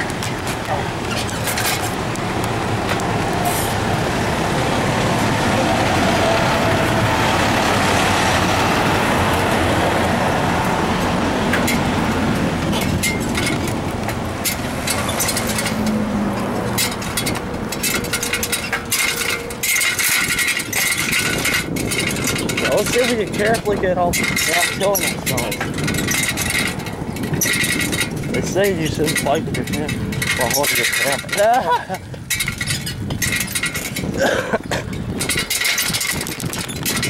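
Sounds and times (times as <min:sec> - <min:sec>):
bicycle tyres on concrete: 0:00.0 - 0:37.0
wind on microphone: 0:00.0 - 0:37.0
rattling clicks: 0:11.0 - 0:37.0.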